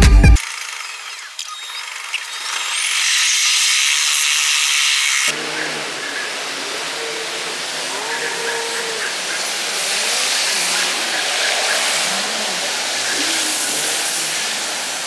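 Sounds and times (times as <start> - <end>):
car tyres hissing on wet asphalt: 3.4 - 15.0.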